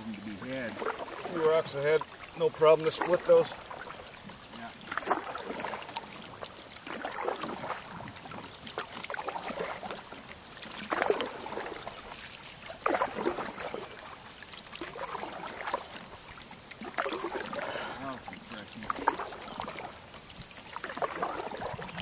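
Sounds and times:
paddle strokes through water: 0.0s - 22.0s
water lapping along hull: 0.0s - 22.0s.

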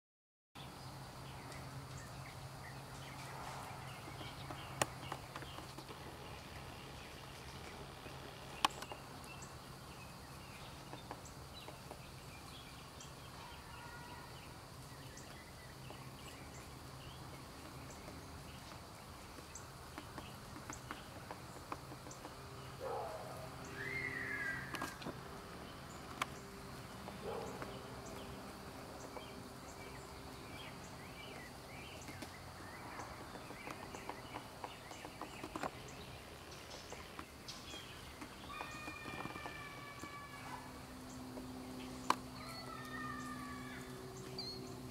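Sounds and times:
faint bird calls: 13.3s - 16.4s, 19.4s - 25.2s, 30.6s - 44.8s
steady low hum: 39.6s - 44.9s.

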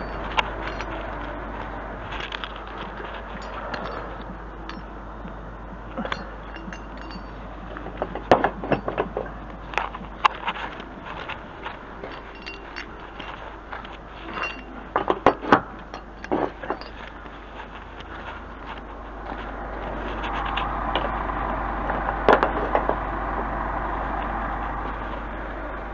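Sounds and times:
light metallic clinks and knocks: 0.0s - 1.4s, 2.2s - 5.4s, 6.0s - 18.8s.

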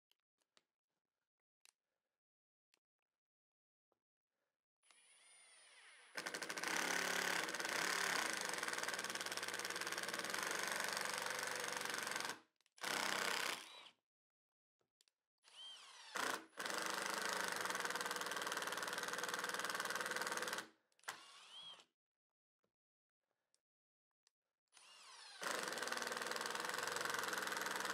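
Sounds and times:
impact driver hammering screw: 6.2s - 13.9s, 15.5s - 21.8s, 24.8s - 27.9s.

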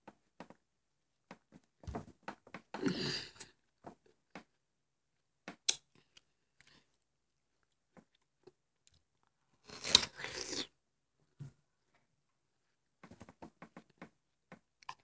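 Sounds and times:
person biting and chewing watermelon: 9.6s - 10.7s.

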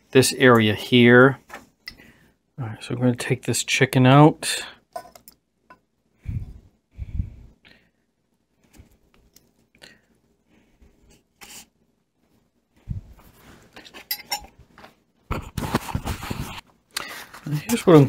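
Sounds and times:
cutlery scraping a plate and pan: 13.9s - 14.5s.

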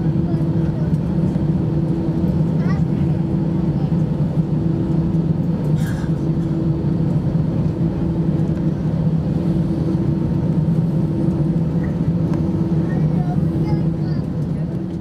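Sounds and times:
jet engine hum in cabin: 0.0s - 15.0s.

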